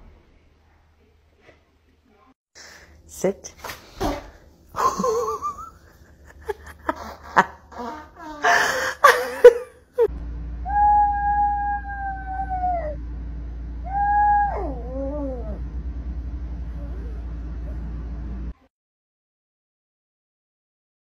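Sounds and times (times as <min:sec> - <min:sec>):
small dog howling: 0:10.6 - 0:13.0, 0:13.8 - 0:15.6.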